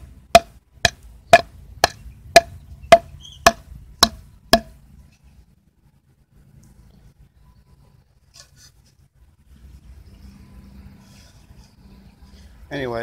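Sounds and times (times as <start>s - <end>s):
hatchet chopping wooden board: 0.3s - 4.7s.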